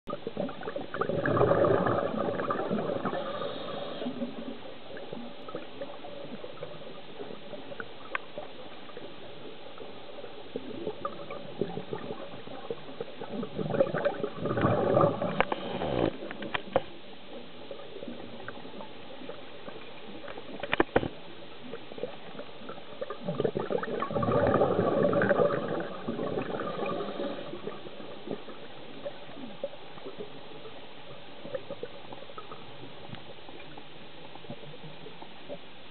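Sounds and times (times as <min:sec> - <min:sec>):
steady underwater hiss: 0:00.1 - 0:35.9
diver's breath bubbling: 0:00.5 - 0:04.6, 0:13.2 - 0:16.4, 0:23.1 - 0:28.5.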